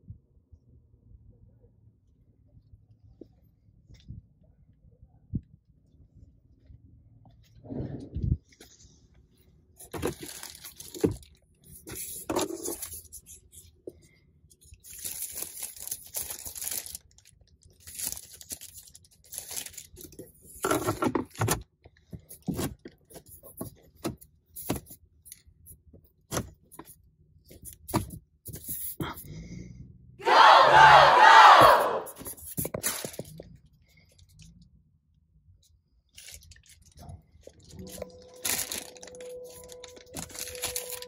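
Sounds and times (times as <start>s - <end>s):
plastic wrap rustling: 9.8s - 11.4s, 14.9s - 20.2s, 36.2s - 41.0s.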